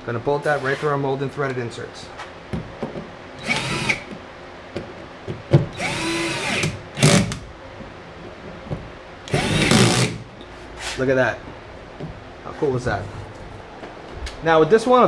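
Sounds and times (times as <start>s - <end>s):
cordless drill driving screws: 3.4s - 4.1s, 5.8s - 7.3s, 9.3s - 10.2s.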